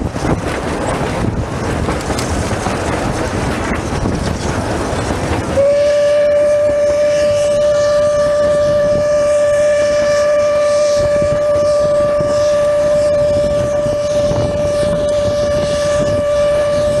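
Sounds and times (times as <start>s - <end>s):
train carriages running: 0.0s - 17.0s
steam whistle blast: 5.5s - 17.0s.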